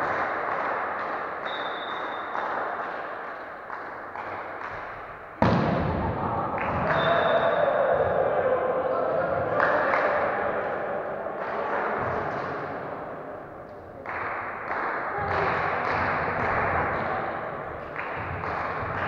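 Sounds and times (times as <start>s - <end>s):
echoing voices: 0.0s - 19.0s
loud thump: 5.4s - 6.2s
volleyball thuds and bounces: 5.4s - 7.0s.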